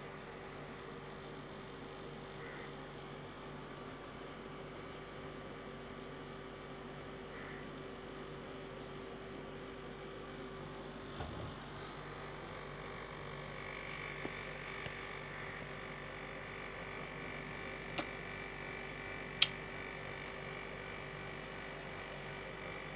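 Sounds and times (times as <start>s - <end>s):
faint electrical hum: 0.0s - 22.9s.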